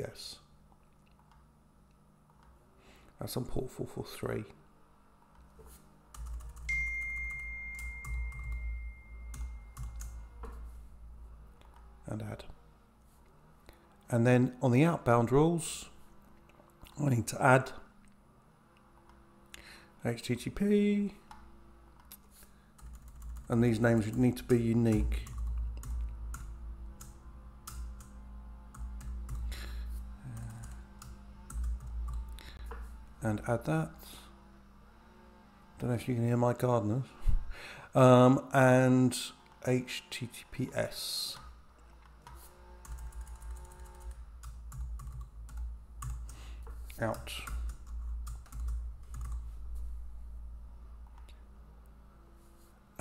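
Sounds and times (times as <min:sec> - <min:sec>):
faint low hum: 0:00.0 - 0:53.0
low steady rumble: 0:00.1 - 0:36.4, 0:42.8 - 0:53.0
keyboard typing: 0:06.1 - 0:10.7, 0:22.8 - 0:29.6, 0:30.2 - 0:32.8, 0:42.2 - 0:49.5
computer keyboard keystrokes: 0:06.2 - 0:08.6, 0:09.3 - 0:10.6, 0:42.2 - 0:46.4, 0:47.1 - 0:49.4
high-pitched tone: 0:06.7 - 0:10.3.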